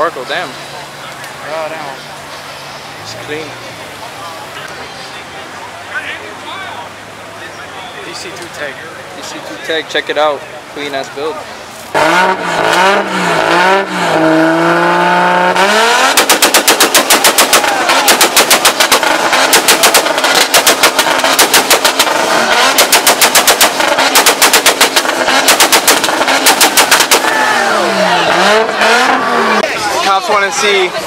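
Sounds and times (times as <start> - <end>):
car engine revving: 0.0 - 31.0
rapid exhaust pops: 14.1 - 27.4.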